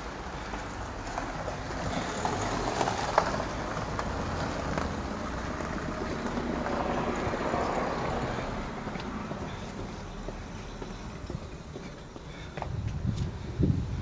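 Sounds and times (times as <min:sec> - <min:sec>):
wind buffeting microphone: 0:12.5 - 0:14.0.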